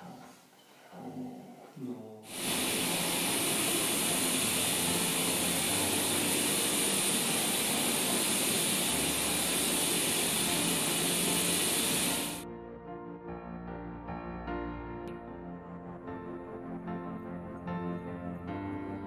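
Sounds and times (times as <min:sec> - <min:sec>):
vacuum cleaner running: 0:02.3 - 0:12.4.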